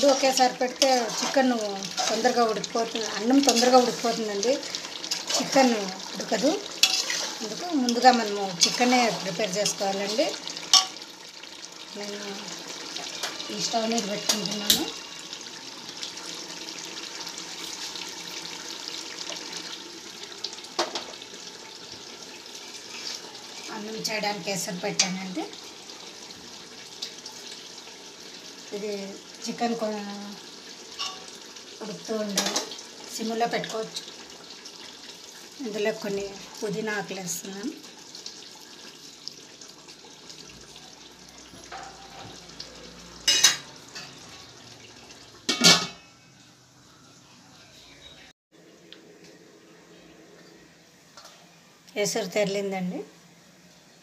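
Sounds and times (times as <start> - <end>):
pot bubbling hiss: 0.0 - 46.4
metal pot clank: 10.7 - 11.0, 31.0 - 31.3, 41.6 - 42.4, 45.5 - 46.1.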